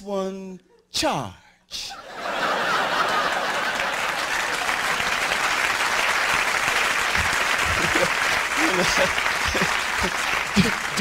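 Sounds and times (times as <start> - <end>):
audience applauding: 2.2 - 11.0.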